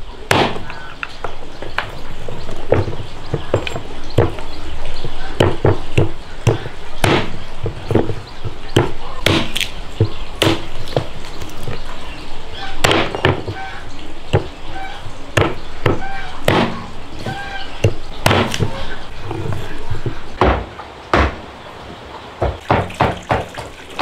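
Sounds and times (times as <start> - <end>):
chopping strikes: 0.3 - 1.9, 5.4 - 11.2, 12.8 - 13.6, 15.4 - 18.8, 20.4 - 21.4.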